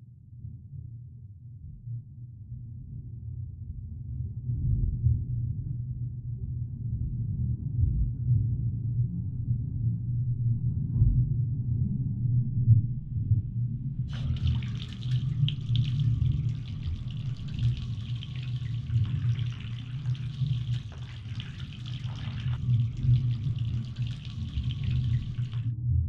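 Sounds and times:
low steady drone: 0:12.5 - 0:26.0
bath tap water splashing into tub: 0:14.1 - 0:25.7.

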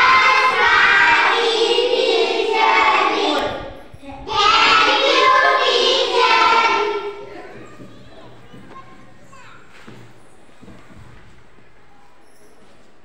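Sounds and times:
children singing in unison: 0:00.0 - 0:07.3.

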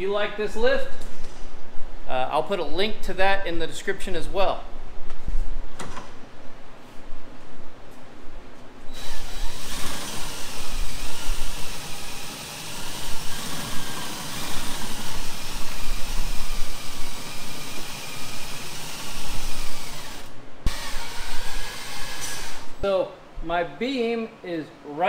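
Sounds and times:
cordless drill running: 0:08.9 - 0:22.7.

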